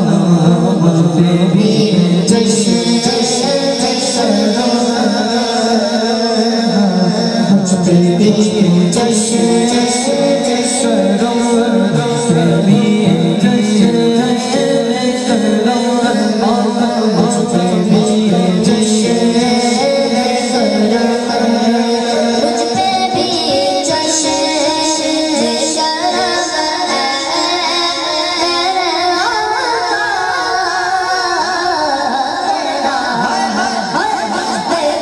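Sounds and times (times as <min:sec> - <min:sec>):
boy singing through a microphone: 0:00.0 - 0:35.0.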